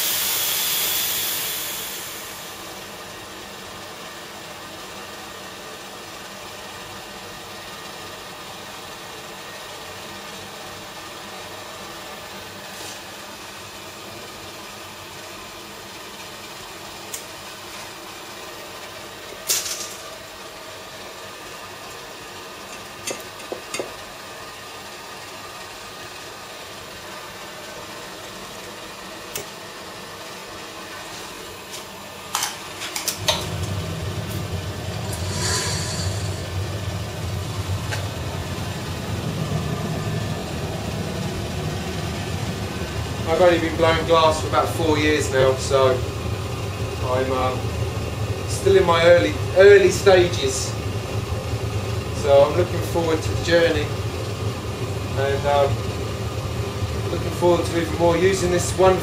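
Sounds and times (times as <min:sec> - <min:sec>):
studio equipment hum: 0:00.0 - 0:04.9, 0:26.4 - 0:59.0
furnace low roar: 0:00.0 - 0:59.0.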